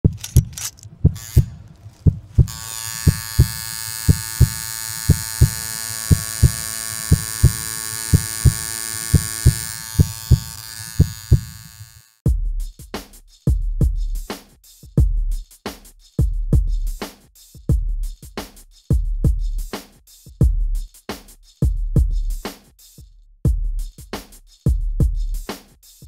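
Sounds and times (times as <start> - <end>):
heavy low bass hits: 0.0 - 4.6
heartbeat-like double thumps: 0.0 - 11.6.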